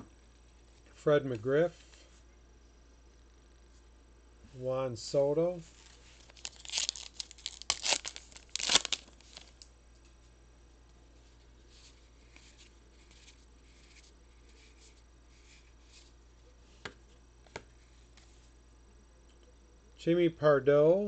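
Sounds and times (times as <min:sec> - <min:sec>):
cards rustling: 0:05.7 - 0:09.7.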